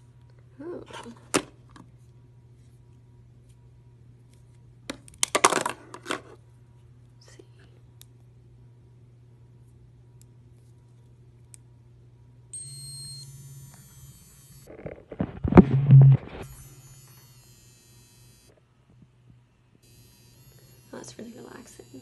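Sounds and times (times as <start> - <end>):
high electronic whine: 12.6 - 18.6, 19.8 - 22.0
vibration motor humming: 12.6 - 18.6, 19.8 - 22.0.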